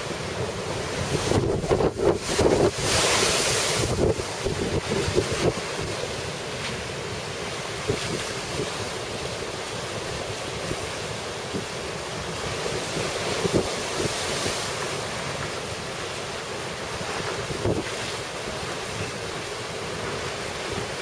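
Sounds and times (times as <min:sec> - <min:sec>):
surf crashing over seawall: 0:00.0 - 0:21.0
wind buffeting microphone: 0:00.4 - 0:06.0, 0:17.0 - 0:21.0.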